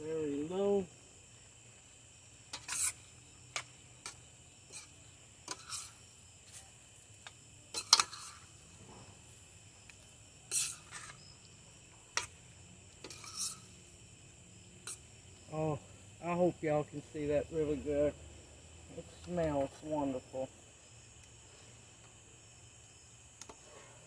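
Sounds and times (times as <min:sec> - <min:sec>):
crickets trilling: 0:00.0 - 0:24.0
metal spoon scraping a skillet: 0:02.5 - 0:03.1, 0:04.0 - 0:06.6, 0:07.7 - 0:09.0, 0:10.5 - 0:11.2, 0:13.0 - 0:13.9, 0:14.8 - 0:15.1.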